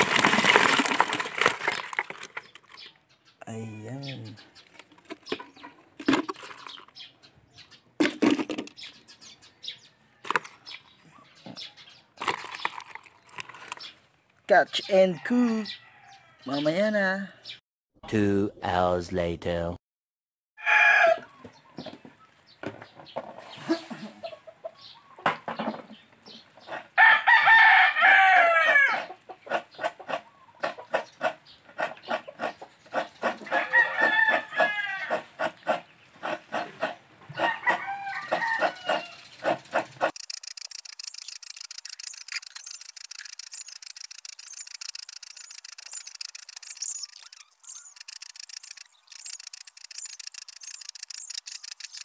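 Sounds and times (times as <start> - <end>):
fish thrashing in a bucket: 0.0 - 2.8, 12.2 - 13.8
rooster crowing: 20.6 - 21.3, 27.0 - 29.1, 33.5 - 35.2, 37.4 - 39.2.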